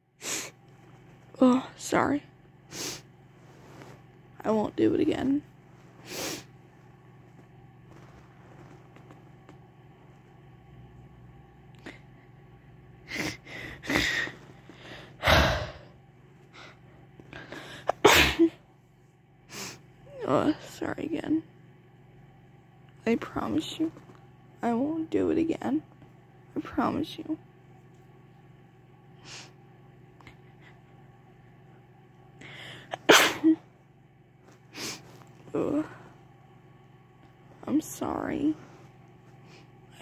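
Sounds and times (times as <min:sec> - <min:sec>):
person sneezing: 0:17.8 - 0:18.6, 0:32.9 - 0:33.6.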